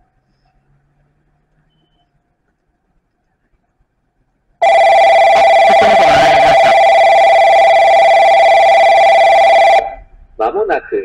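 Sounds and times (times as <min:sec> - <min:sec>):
electronic ringing alert tone: 0:04.6 - 0:09.9.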